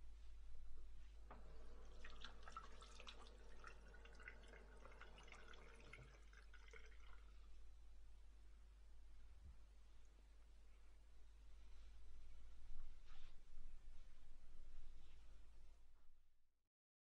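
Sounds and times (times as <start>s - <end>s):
water dripping into a sink: 1.3s - 7.6s.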